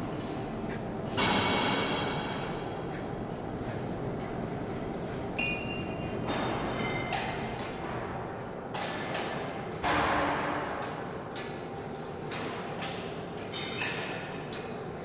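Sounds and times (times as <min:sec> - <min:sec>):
crane running noise: 0:00.0 - 0:15.0
metallic knocks and clanks: 0:01.0 - 0:02.7, 0:05.4 - 0:11.6.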